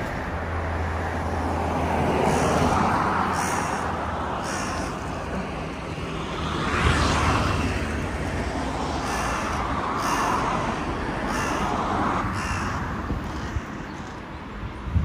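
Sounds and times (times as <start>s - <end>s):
crow cawing: 2.2s - 5.2s, 9.0s - 13.8s.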